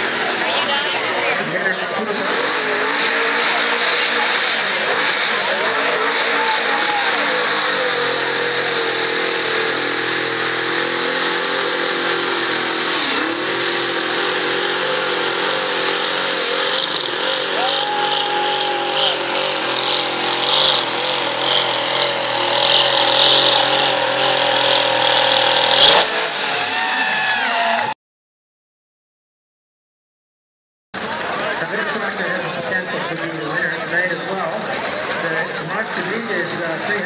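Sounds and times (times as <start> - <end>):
tractor engine running at high revs: 0.0 - 28.0.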